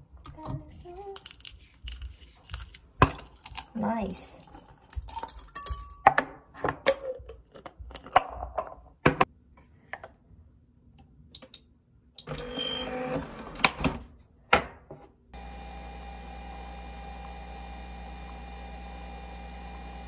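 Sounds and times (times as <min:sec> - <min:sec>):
coffee machine humming: 0:15.4 - 0:20.0.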